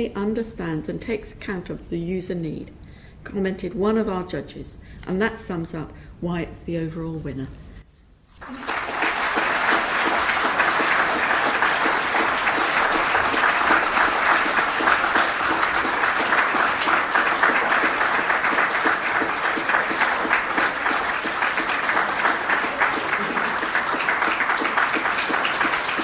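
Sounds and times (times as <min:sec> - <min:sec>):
audience applauding: 0:08.4 - 0:26.0.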